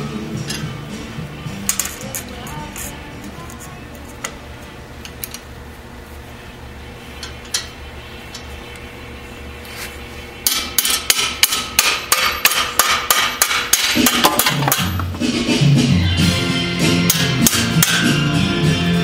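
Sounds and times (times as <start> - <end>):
low steady hum: 0.0 - 18.6
hammer striking metal: 10.4 - 15.2, 17.0 - 18.3.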